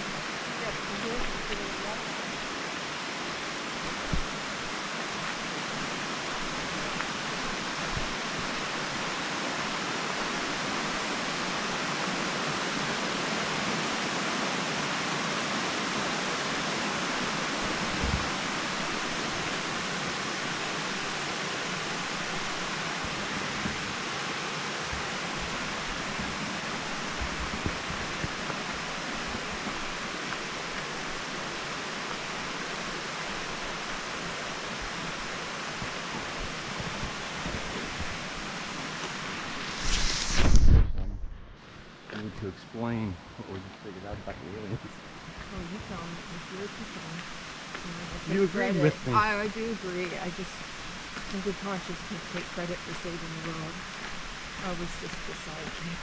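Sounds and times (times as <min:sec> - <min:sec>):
creek rushing over rocks: 0:00.0 - 0:41.0
soft low thumps: 0:17.9 - 0:18.4.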